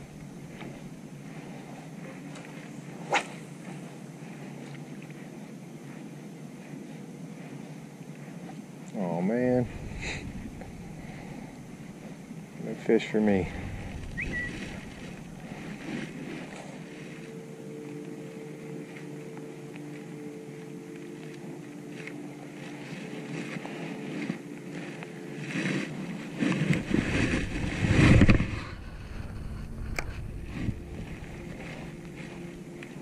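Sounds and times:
electric boat motor humming: 0:00.0 - 0:33.0
loud low thumps: 0:09.6 - 0:12.1, 0:13.3 - 0:15.8
rustling: 0:09.6 - 0:12.4.

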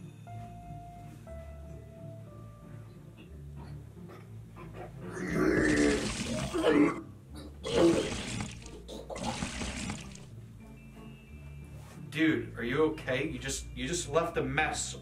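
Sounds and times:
man retching and vomiting: 0:05.1 - 0:10.2
wet splatter: 0:05.6 - 0:06.7, 0:07.7 - 0:10.3.

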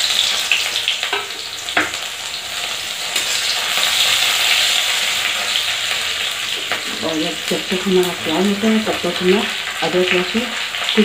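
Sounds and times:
onions sizzling in hot oil: 0:00.0 - 0:11.0
spoon knocking against pan: 0:01.1 - 0:02.0.

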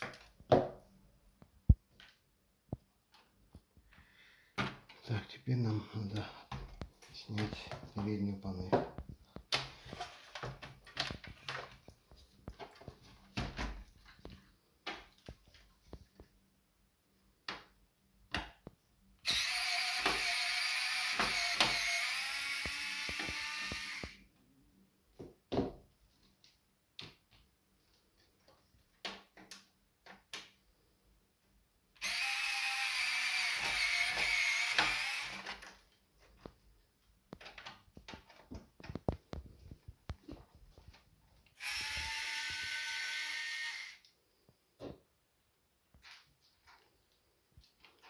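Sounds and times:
electric screwdriver whirring: 0:19.2 - 0:24.2, 0:32.0 - 0:35.6, 0:41.6 - 0:44.0.

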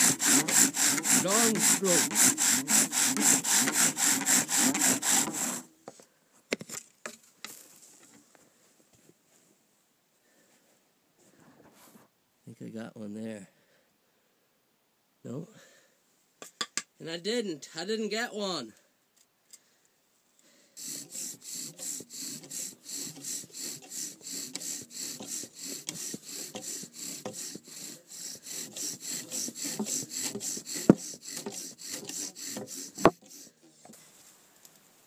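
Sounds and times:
bow drill spindle rasping: 0:00.0 - 0:05.7, 0:20.8 - 0:34.0.

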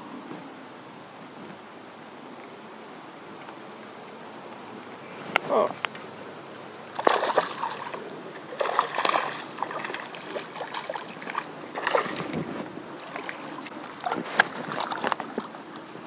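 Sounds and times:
fish splashing at water surface: 0:06.9 - 0:15.6.

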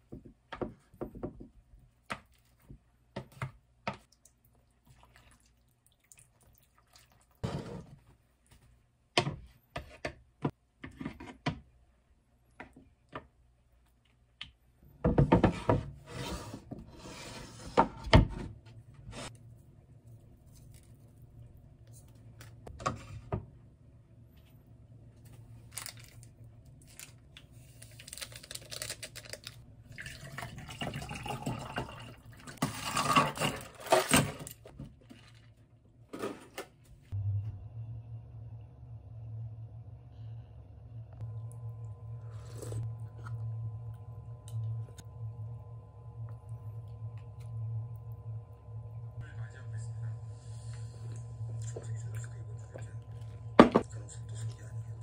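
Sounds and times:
faint steady hum: 0:11.9 - 0:55.0
packet tearing open: 0:27.8 - 0:29.6.

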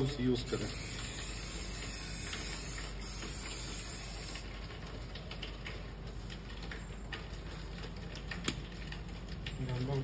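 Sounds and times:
aerosol spray hissing: 0:00.5 - 0:04.4.

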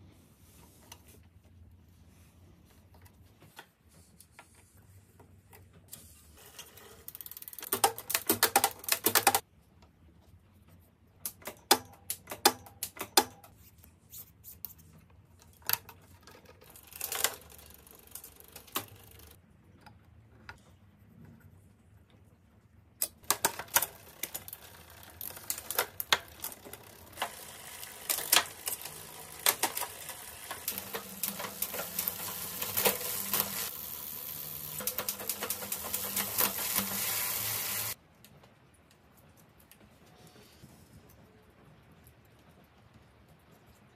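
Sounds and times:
clicks of bicycle parts and tools: 0:11.2 - 0:13.6.

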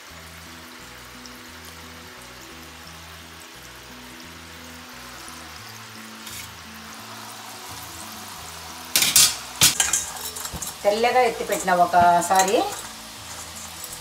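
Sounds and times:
dough sizzling in hot oil: 0:00.0 - 0:14.0
soft background music: 0:00.0 - 0:14.0
metal spoon clattering: 0:09.0 - 0:10.8, 0:11.4 - 0:14.0.

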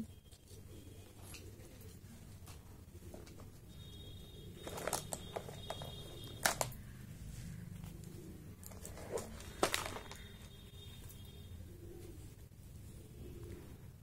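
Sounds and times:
jewellery rustling and clicking: 0:04.6 - 0:06.8, 0:08.2 - 0:10.6.

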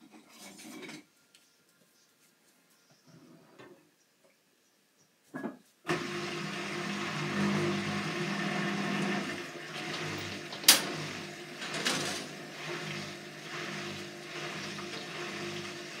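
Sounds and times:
washing machine drum turning: 0:07.0 - 0:16.0.

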